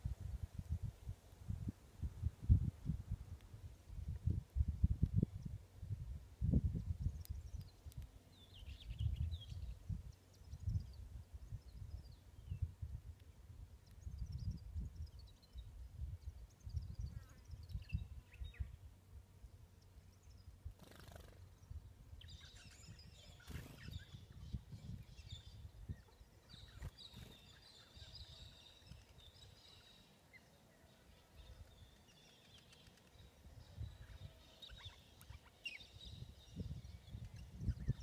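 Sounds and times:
wind buffeting microphone: 0.0s - 18.8s, 21.6s - 29.4s, 36.0s - 38.0s
faint bird chirps: 13.8s - 18.9s, 19.7s - 38.0s.

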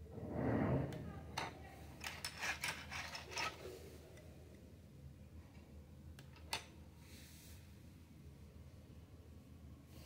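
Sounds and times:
plastic toy plates clattering: 2.0s - 3.6s.

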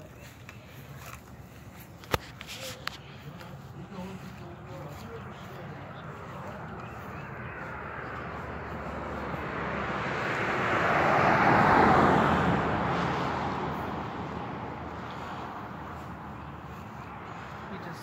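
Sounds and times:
vehicle passing by: 2.6s - 18.0s.

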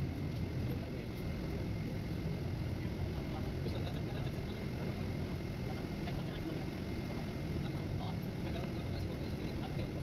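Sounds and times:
bus engine rumble: 0.0s - 10.0s
faint thin steady whine: 0.0s - 10.0s.

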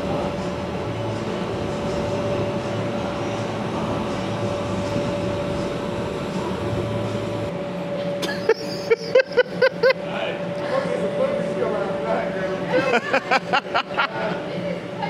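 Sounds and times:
low hum: 0.0s - 10.6s
motor and blower whirring: 0.0s - 15.0s.

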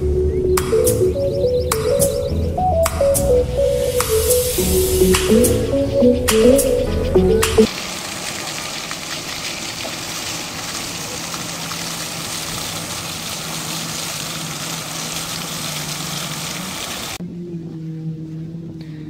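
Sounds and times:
fountain water splashing: 3.9s - 17.2s.

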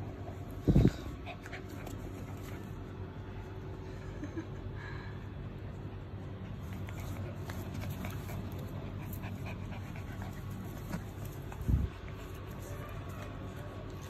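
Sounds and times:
steady low hum: 0.0s - 14.0s
puppies scratching and tapping: 6.7s - 14.0s.

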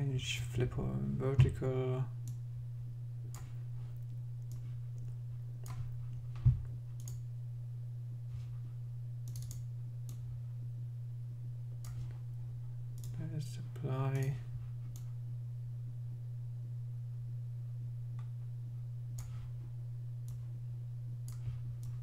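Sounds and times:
low hum: 0.0s - 22.0s
computer clicks: 7.0s - 7.2s, 9.2s - 10.2s, 13.0s - 13.2s.

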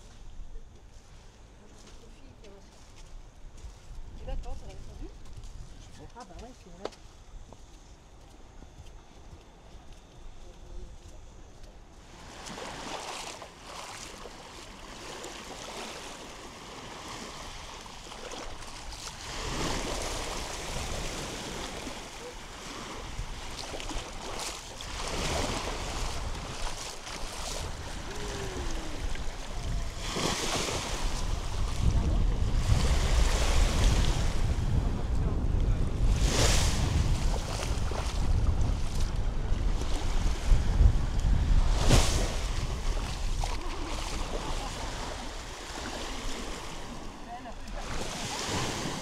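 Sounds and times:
small waves breaking on beach: 12.0s - 49.0s
wind buffeting microphone: 16.4s - 49.0s.

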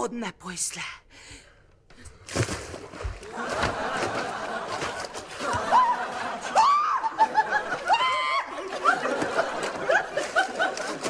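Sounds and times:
audience laughter: 3.2s - 11.0s.

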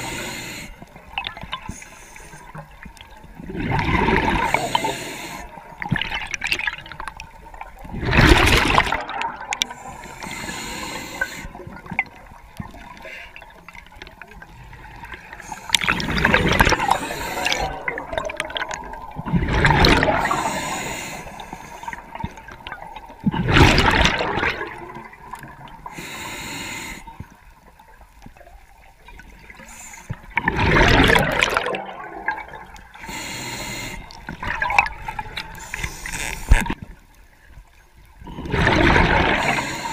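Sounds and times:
underwater water noise: 0.0s - 39.9s
diver's exhaled bubbles: 3.4s - 5.0s, 7.9s - 9.7s, 15.7s - 20.8s, 23.2s - 25.6s, 30.4s - 32.8s, 38.3s - 39.9s.

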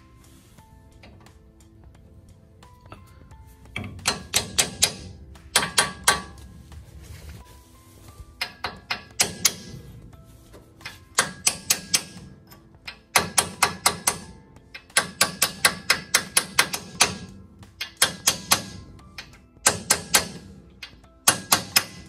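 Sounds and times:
hammer striking steel drift: 3.7s - 6.6s, 8.4s - 10.1s, 10.8s - 22.0s.

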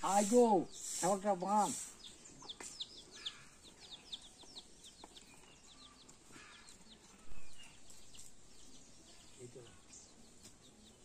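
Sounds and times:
birds chirping: 0.0s - 11.0s.

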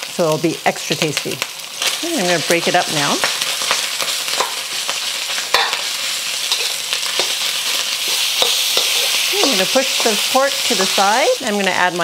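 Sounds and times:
meat sizzling in a wok: 0.0s - 12.0s
metal spatula scraping a wok: 3.7s - 11.2s.

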